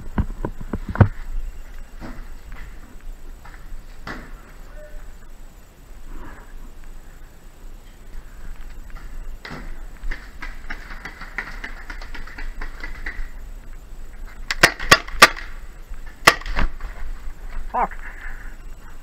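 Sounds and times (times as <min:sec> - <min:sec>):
paintball pistol shots: 0:14.5 - 0:15.6, 0:16.2 - 0:16.8.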